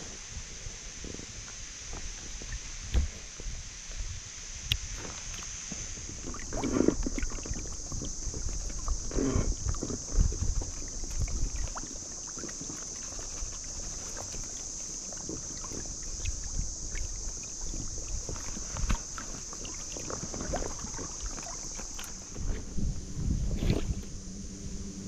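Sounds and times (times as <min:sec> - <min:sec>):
wind rumble on microphone: 0:00.0 - 0:25.0
water splashing and lapping: 0:04.7 - 0:24.2.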